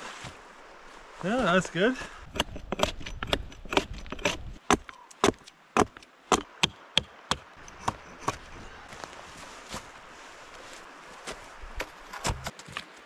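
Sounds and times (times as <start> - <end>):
hatchet chopping a log: 2.3 - 8.6.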